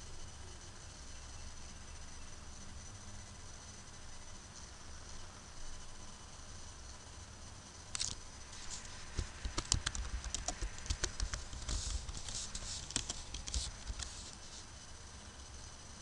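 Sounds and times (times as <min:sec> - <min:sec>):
keyboard key clicks: 0:09.1 - 0:14.1.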